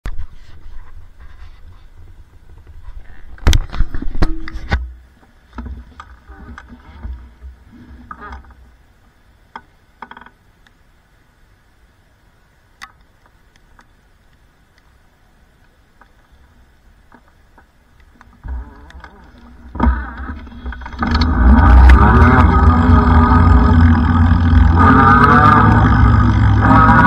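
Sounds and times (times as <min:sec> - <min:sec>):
low rumble: 0:18.4 - 0:27.0.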